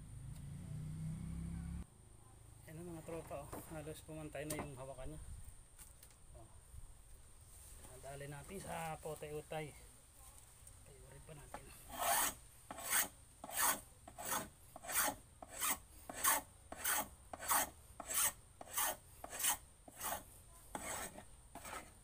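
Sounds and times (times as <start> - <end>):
hand tool scraping wood: 11.5 - 22.0.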